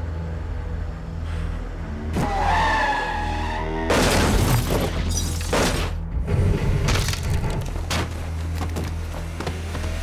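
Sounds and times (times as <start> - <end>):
pitched screech: 2.2 - 4.0.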